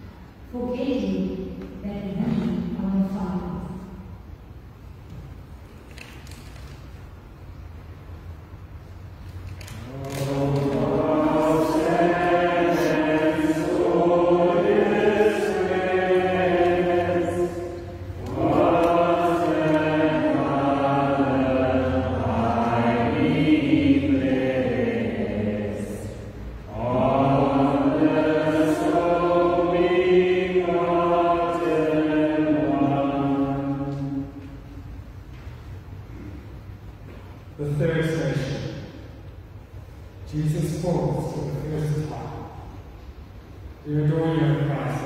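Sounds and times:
slow hymn singing: 9.2s - 45.0s.

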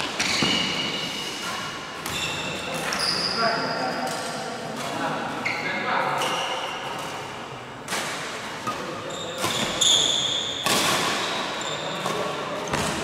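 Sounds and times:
shoes squeaking on court floor: 0.0s - 7.2s, 8.6s - 13.0s
racket striking shuttlecock: 10.6s - 13.0s.

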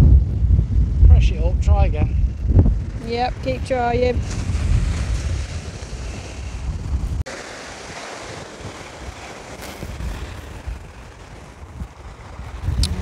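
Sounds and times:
wind gusting on microphone: 0.0s - 13.0s
waves breaking on shore: 2.9s - 13.0s.

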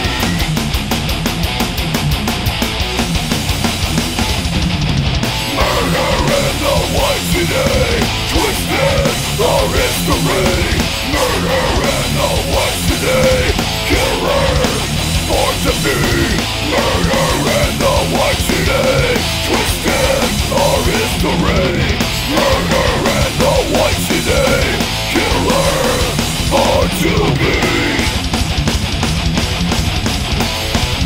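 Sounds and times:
heavy metal band playing: 0.0s - 31.0s
wavering guitar lead line: 0.0s - 31.0s.

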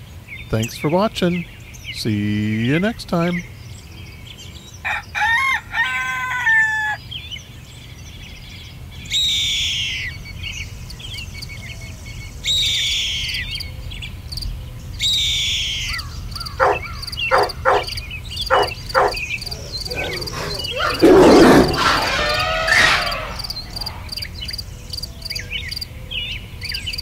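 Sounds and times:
rooster crowing: 4.9s - 7.0s, 16.6s - 17.9s, 18.5s - 24.2s
bird high falling calls: 15.0s - 24.6s
short bird calls: 15.4s - 24.5s.

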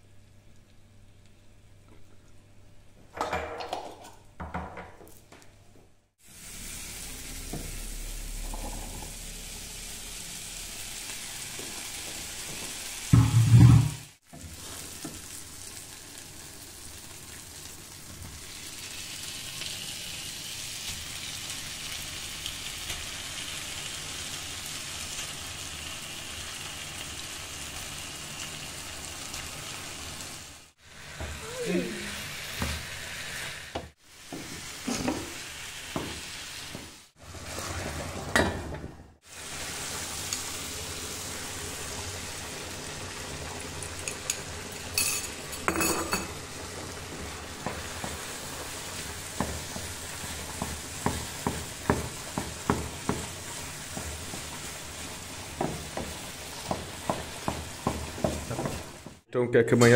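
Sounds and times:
food sizzling in a frying pan: 6.2s - 59.3s
loud thump: 13.2s - 14.1s.

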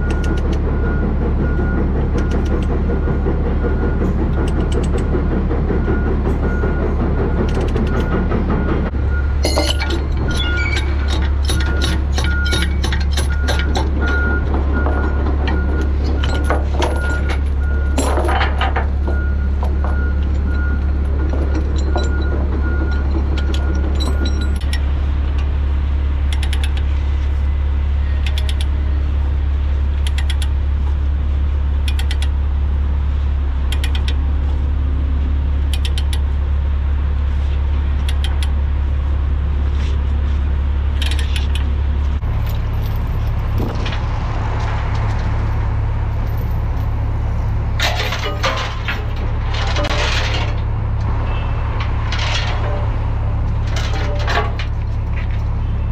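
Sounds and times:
diesel engine idling: 0.0s - 55.9s
steel chain clinking and rattling: 42.3s - 43.8s.

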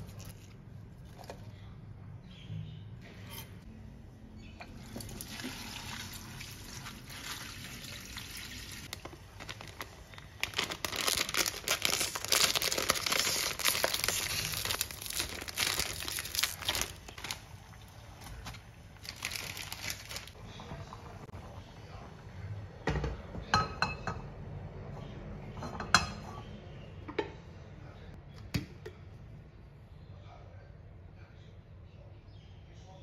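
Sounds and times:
water running: 4.6s - 8.9s
plastic noodle packet crinkling: 8.9s - 20.4s.

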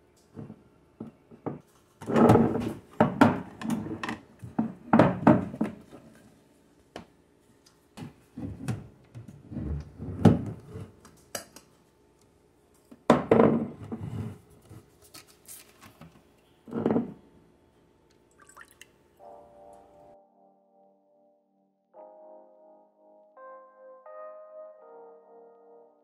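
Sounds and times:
juice pouring into a glass bowl: 18.3s - 19.0s.

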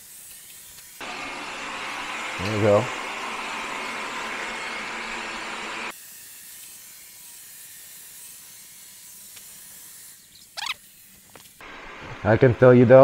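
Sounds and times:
robot vacuum whirring: 1.0s - 6.0s.

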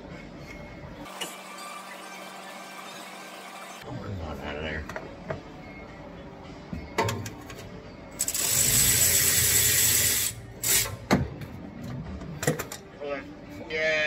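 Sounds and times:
ratchet wrench running: 8.2s - 11.0s.

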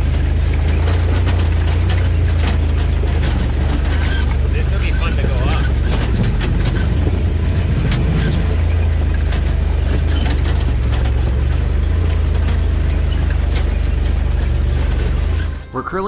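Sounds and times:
knocks and clatter: 0.0s - 15.7s
utility vehicle engine droning: 0.0s - 16.0s.

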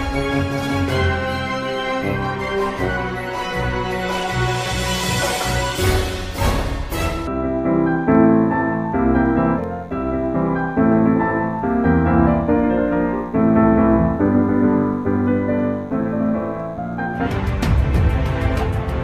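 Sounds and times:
piano chords: 0.0s - 19.0s
percussion beat: 4.3s - 7.3s.

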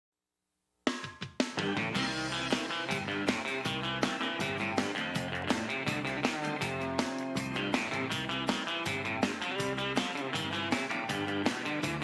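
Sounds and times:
drum and cymbal hits: 0.9s - 5.0s
band playing theme music: 1.4s - 12.0s.

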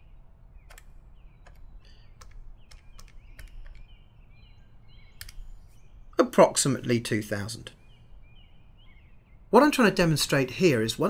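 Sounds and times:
calculator keys clicking: 0.7s - 3.9s.

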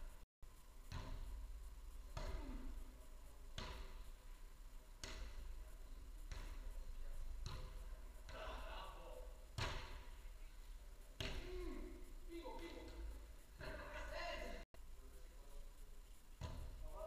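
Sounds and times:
ball thuds echoing in hall: 0.7s - 12.0s, 16.3s - 17.0s.

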